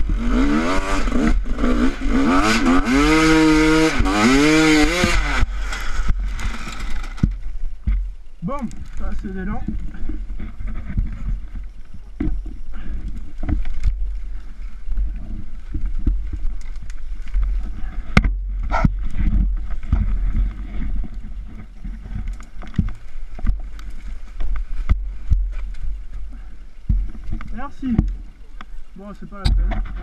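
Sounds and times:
dirt bike knocks and scrapes: 0:00.5 - 0:08.1, 0:08.8 - 0:14.2, 0:15.0 - 0:26.0
muffled low rumble: 0:05.1 - 0:30.0.

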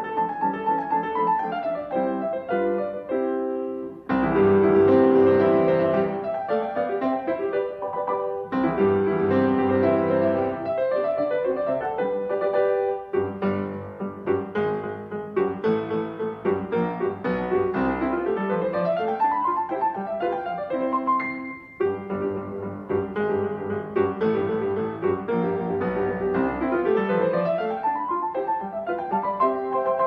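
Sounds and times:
keyboard melody: 0:00.0 - 0:30.0.

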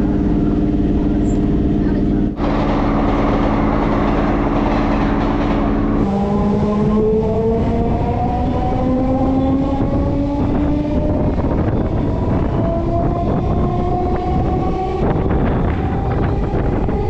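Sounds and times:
electric train rumbling: 0:00.0 - 0:17.0
train motor whine rising: 0:00.0 - 0:17.0.

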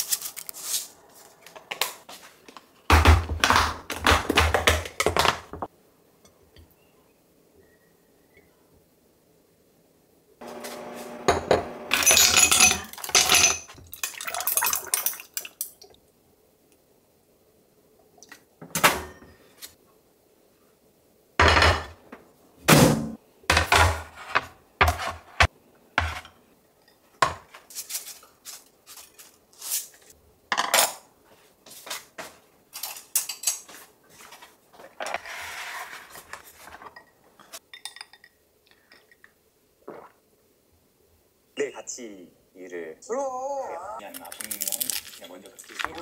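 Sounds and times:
rustling: 0:00.0 - 0:02.5, 0:27.5 - 0:30.2
dishes and glassware clinking: 0:11.3 - 0:15.1, 0:36.8 - 0:39.3.

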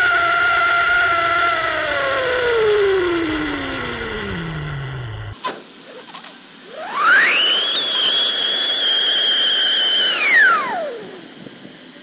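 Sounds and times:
firework siren shriek: 0:06.8 - 0:11.8.

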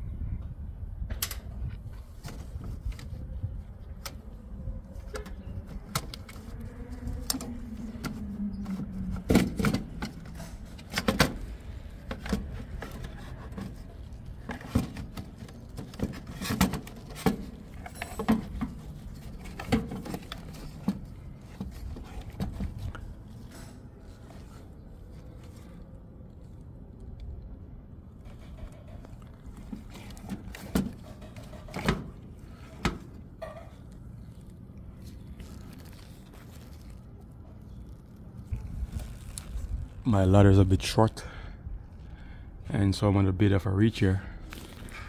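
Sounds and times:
hand tools and screws rattling: 0:14.5 - 0:22.1.

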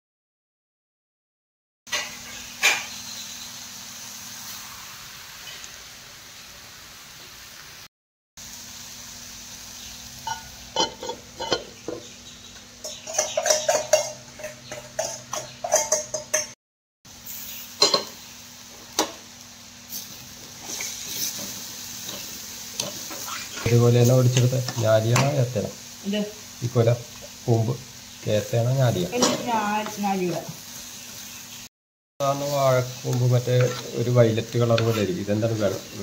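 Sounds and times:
utensils clinking against dishes: 0:10.2 - 0:12.1, 0:12.8 - 0:16.6, 0:29.2 - 0:29.5.

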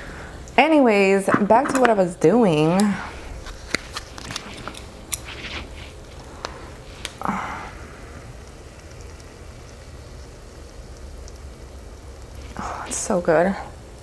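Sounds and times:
meat sizzling on a grill: 0:03.6 - 0:14.0.

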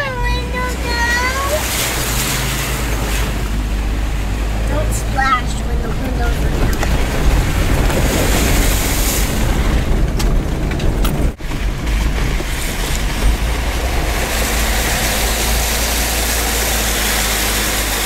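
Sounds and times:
engine and tyre rumble: 0:00.0 - 0:18.0
wind noise: 0:00.0 - 0:18.0
water hiss: 0:01.4 - 0:05.3, 0:12.4 - 0:18.0.

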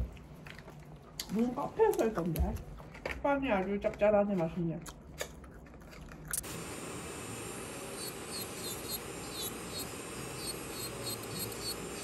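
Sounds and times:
electric nail drill grinding: 0:06.4 - 0:12.0.

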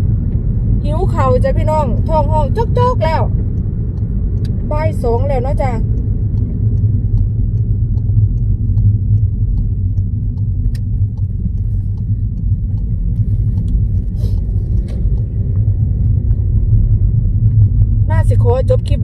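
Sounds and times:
car road and engine rumble: 0:00.0 - 0:19.0
faint regular ticking: 0:01.3 - 0:16.4.

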